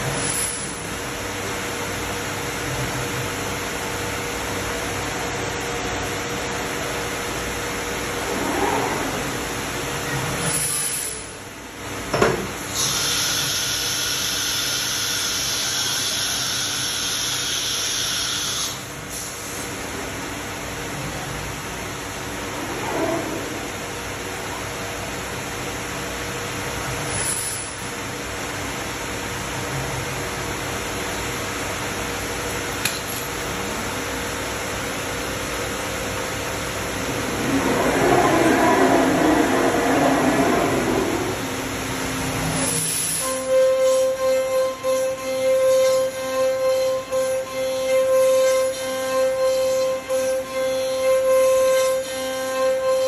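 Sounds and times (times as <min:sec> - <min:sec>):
machine noise: 0:32.8 - 0:52.0
cnc router running: 0:33.6 - 0:53.0.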